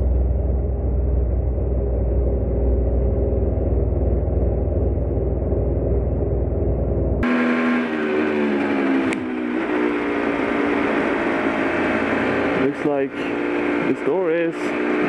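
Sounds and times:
muffled low rumble: 0:00.0 - 0:07.3.

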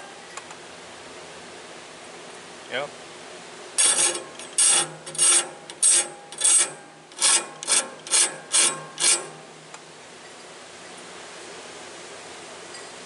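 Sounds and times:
hand file rasping on steel: 0:03.8 - 0:09.4.

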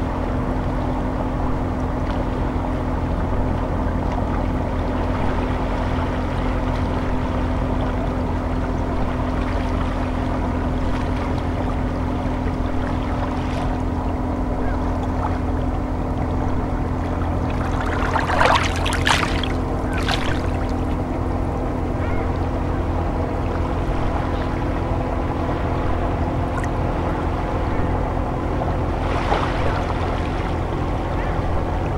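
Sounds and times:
low humming drone: 0:00.0 - 0:31.9
water splashes: 0:03.3 - 0:21.5, 0:28.7 - 0:31.9
waves lapping on pebbles: 0:17.5 - 0:20.8.

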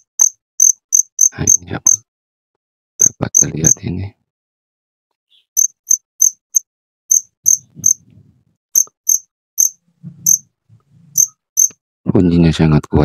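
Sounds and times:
cricket chirping: 0:00.0 - 0:02.0, 0:05.6 - 0:08.0, 0:08.8 - 0:10.5, 0:11.2 - 0:11.8.

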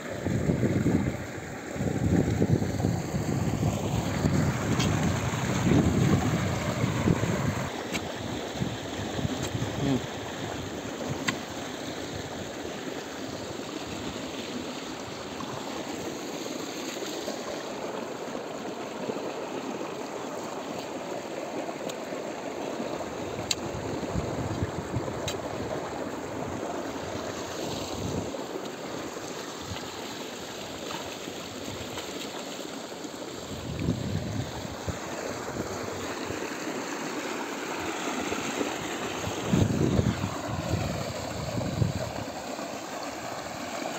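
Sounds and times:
water rushing along a channel: 0:00.0 - 0:43.9
wind on microphone: 0:00.2 - 0:10.1, 0:23.3 - 0:25.7, 0:33.5 - 0:36.0, 0:39.3 - 0:42.4.

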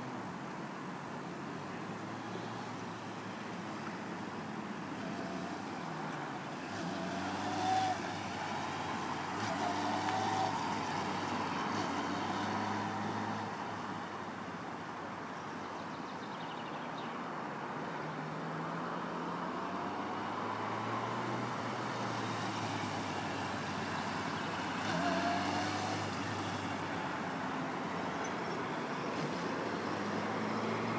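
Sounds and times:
motorcycle engine revving: 0:06.7 - 0:13.5, 0:21.8 - 0:26.8.

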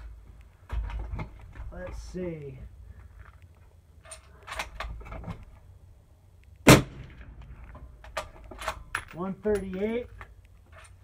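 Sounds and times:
suppressed rifle shot: 0:06.6 - 0:07.4.

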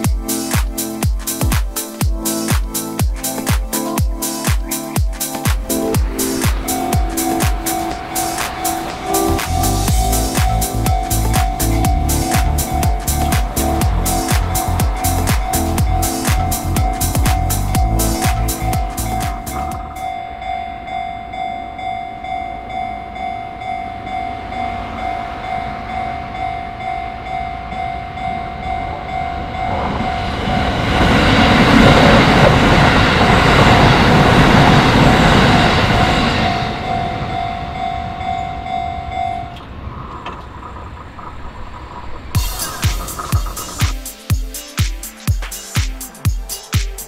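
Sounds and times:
train rumbling past: 0:05.3 - 0:44.3
level crossing alarm ringing: 0:05.7 - 0:40.4.

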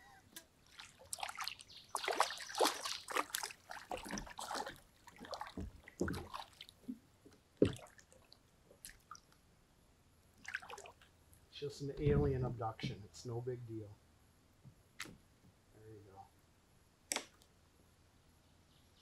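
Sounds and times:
water splashing and sloshing: 0:00.4 - 0:09.4, 0:10.3 - 0:11.2.

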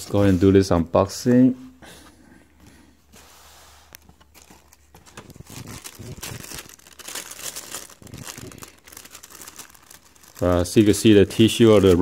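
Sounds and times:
tissue paper crinkling: 0:04.0 - 0:12.0.

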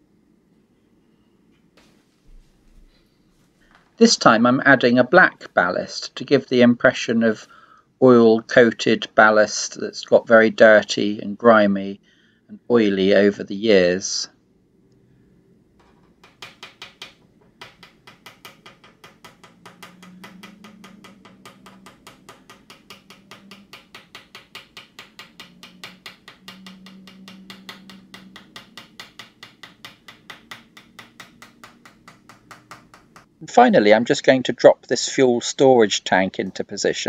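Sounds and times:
faint low hum: 0:00.0 - 0:16.5.

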